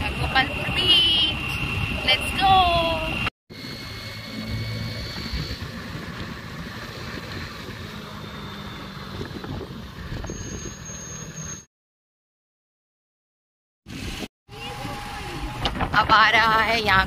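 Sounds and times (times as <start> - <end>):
motorbike engine hum: 0.0 - 11.7
road and wind noise: 0.0 - 11.7, 13.9 - 17.0.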